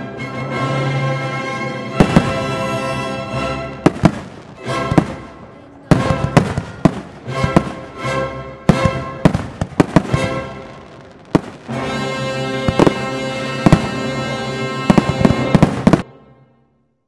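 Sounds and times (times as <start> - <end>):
music with held chord: 0.0 - 4.0, 11.6 - 16.8
fireworks bursting with sharp bangs: 1.9 - 16.1.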